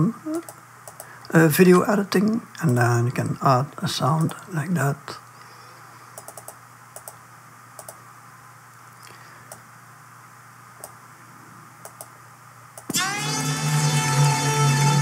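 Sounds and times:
faint low hum: 0.0 - 15.0
mouse and keyboard clicks: 6.2 - 7.2, 7.8 - 8.0, 11.8 - 12.1.

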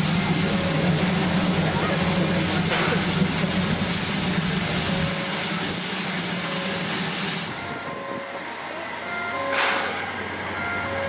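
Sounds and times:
steam hissing: 0.0 - 8.2.

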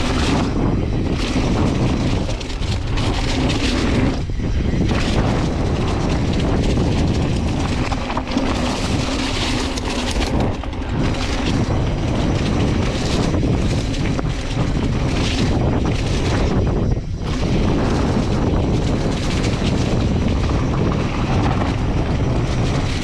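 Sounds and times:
bike rattling over bumps: 0.0 - 23.0
wind buffeting microphone: 0.0 - 23.0
tyres on dirt and leaves: 1.1 - 16.5.

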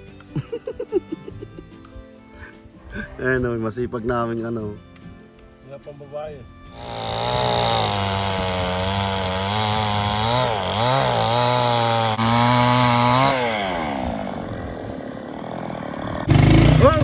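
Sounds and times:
chainsaw running at high revs: 6.7 - 17.0.

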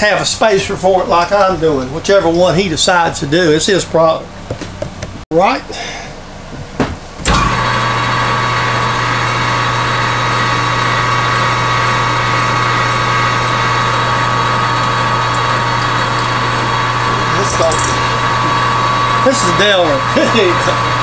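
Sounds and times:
lathe motor humming and whining: 7.2 - 21.0
lathe switching on: 7.2 - 21.0.

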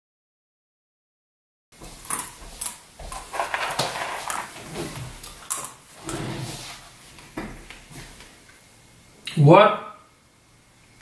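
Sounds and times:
office chair creaking: 3.2 - 6.9.

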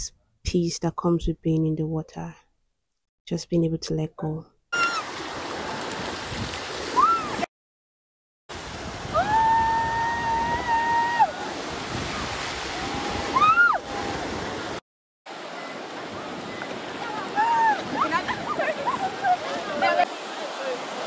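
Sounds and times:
high-pitched voice squeals: 4.8 - 5.1
ocean surf on sandy beach: 4.8 - 7.4, 8.5 - 21.0.

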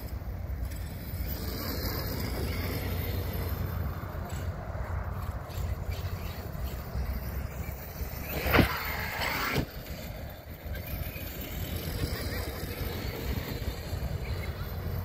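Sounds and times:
electric motor whining: 5.5 - 9.9.

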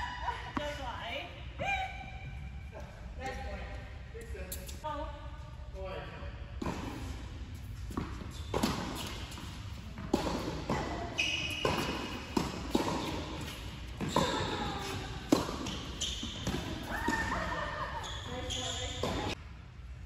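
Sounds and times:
tennis balls struck by rackets: 6.6 - 17.4
tennis balls bouncing on hard court: 6.6 - 19.4.

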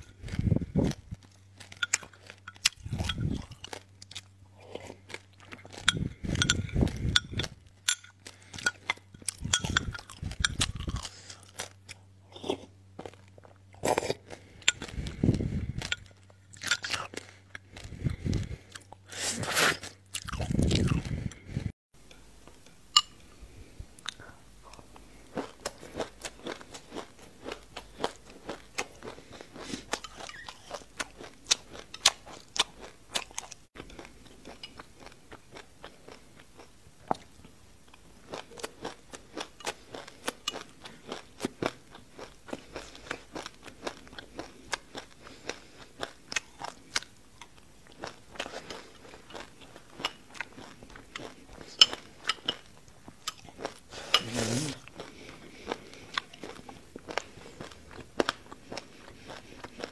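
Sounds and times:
crunchy chewing: 0.0 - 21.7, 24.0 - 59.9.

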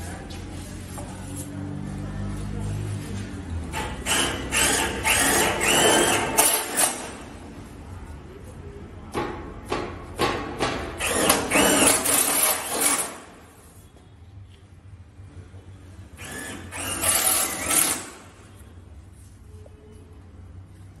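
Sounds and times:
cordless drill drilling metal: 4.1 - 7.1, 11.0 - 13.2, 16.2 - 18.2.

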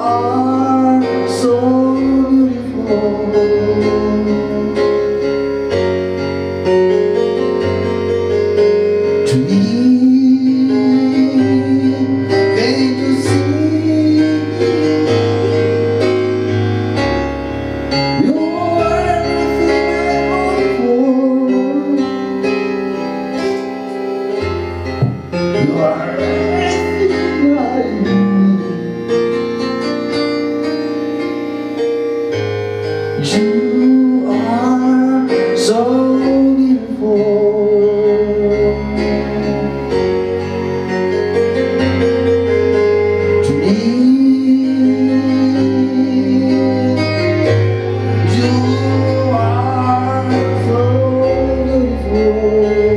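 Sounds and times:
man singing: 0.0 - 5.4, 9.2 - 16.5, 17.9 - 23.8, 25.0 - 29.8, 33.2 - 40.6, 42.7 - 52.9
electronic keyboard chords: 0.0 - 52.9.

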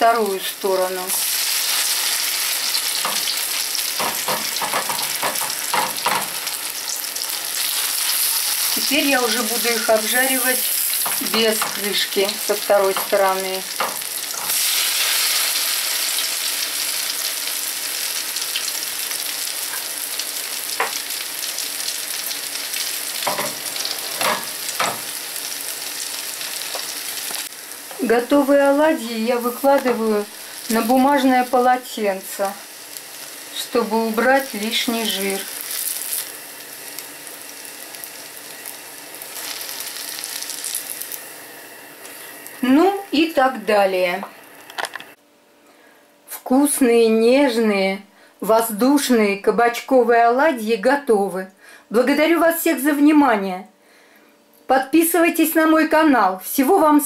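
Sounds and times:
fritters sizzling in oil: 0.0 - 43.8.

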